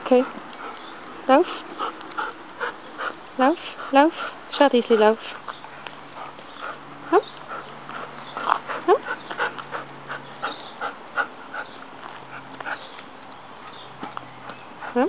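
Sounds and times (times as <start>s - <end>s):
light ticks and scuffs: 11.7s - 15.0s.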